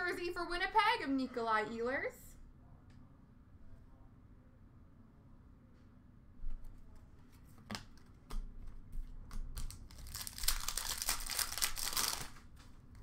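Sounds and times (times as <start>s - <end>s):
wrapper crinkling and tearing: 9.5s - 12.6s.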